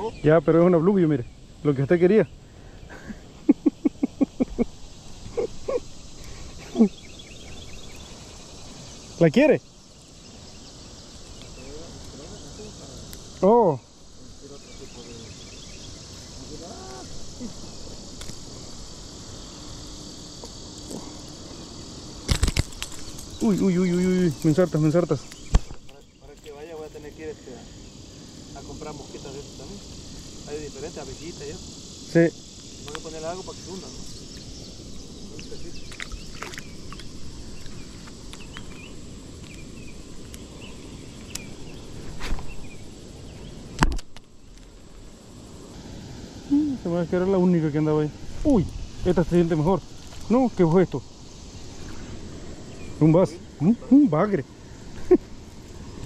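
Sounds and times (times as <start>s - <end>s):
insects chorus: 0.0s - 56.0s
faint bird chirps: 5.0s - 9.2s, 14.6s - 17.9s
sharp click: 43.8s - 44.3s.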